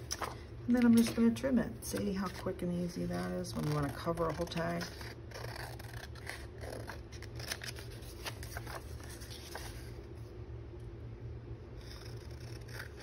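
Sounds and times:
scissors snipping paper: 0.0 - 9.6.

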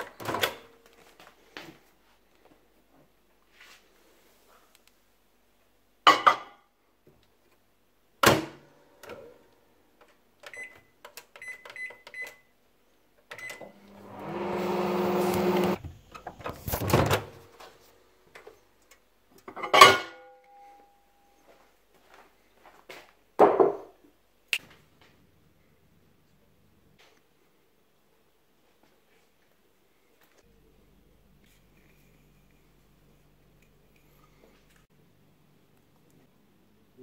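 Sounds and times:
microwave oven humming: 13.5 - 15.8.

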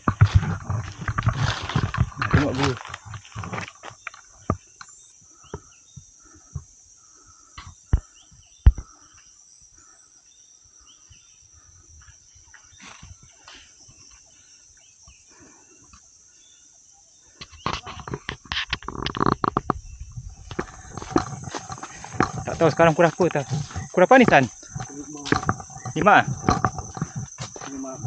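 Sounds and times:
footsteps on dry leaves: 0.0 - 4.0, 20.4 - 28.0
insects droning: 0.0 - 28.0
bird chirps: 19.5 - 28.0
sharp knocks: 20.5 - 27.8.

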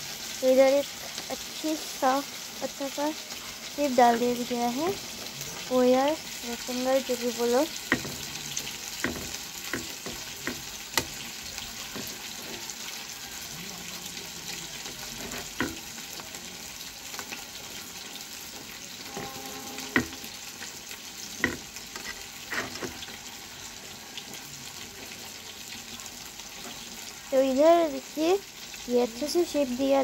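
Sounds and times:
food sizzling in oil: 0.0 - 30.0
spoon scraping a steel plate: 19.1 - 20.8, 21.4 - 23.2.

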